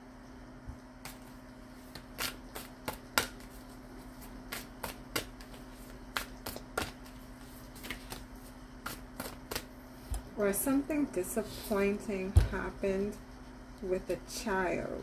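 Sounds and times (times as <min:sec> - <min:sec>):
steady low hum: 0:00.0 - 0:15.0
cards slapping and flicking: 0:01.0 - 0:10.3.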